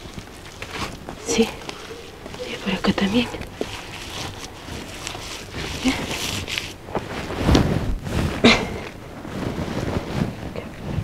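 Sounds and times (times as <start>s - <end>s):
hands spreading wet mud: 0.0s - 8.4s.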